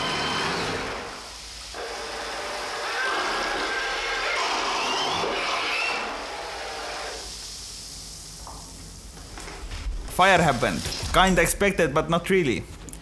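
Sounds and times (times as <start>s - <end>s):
electric motors whining: 0.0s - 7.2s.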